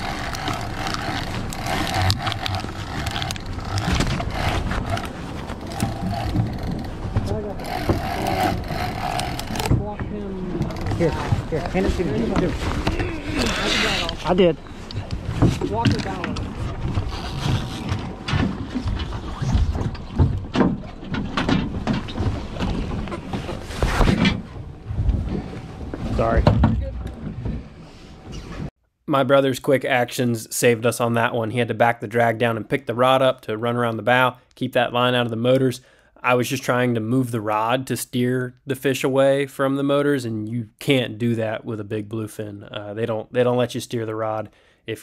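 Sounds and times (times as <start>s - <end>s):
fishing reel clicks and knocks: 0.0s - 5.0s, 7.6s - 9.7s
outboard motors rumbling: 0.0s - 28.7s
knocks and bumps on boat deck: 17.8s - 27.8s
wind buffeting microphone: 24.2s - 28.7s.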